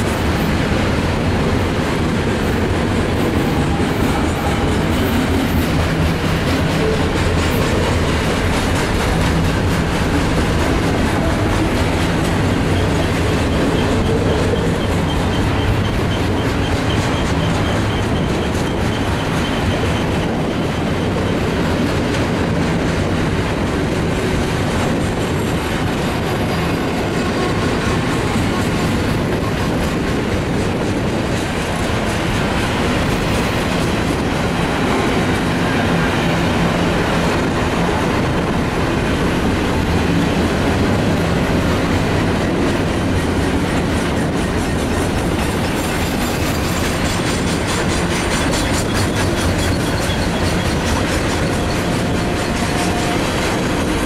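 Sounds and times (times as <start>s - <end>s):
train wheels rumbling on rails: 0.0s - 54.0s.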